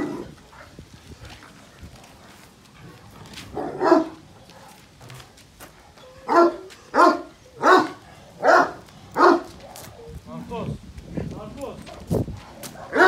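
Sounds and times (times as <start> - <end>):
dog barking: 3.5 - 4.8, 6.3 - 10.1, 12.4 - 13.0.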